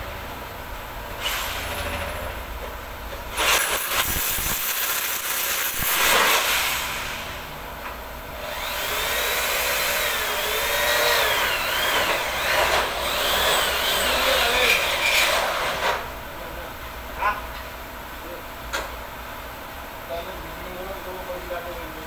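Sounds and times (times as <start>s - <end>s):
power drill drilling: 3.4s - 7.4s, 8.4s - 16.0s
drill motor whine: 8.4s - 15.9s.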